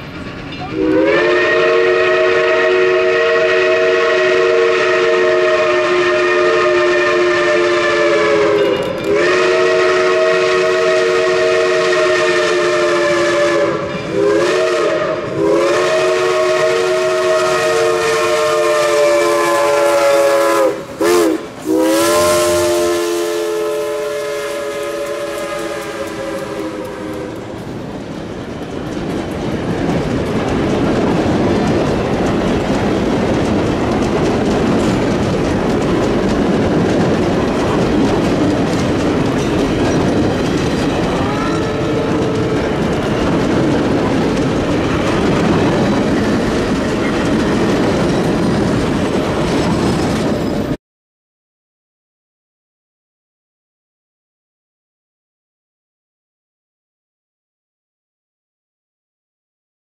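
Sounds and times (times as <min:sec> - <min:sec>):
coaches rolling on rails: 0:00.0 - 0:06.3, 0:07.4 - 0:50.8
steam locomotive chime whistle: 0:00.6 - 0:27.8, 0:38.9 - 0:43.4.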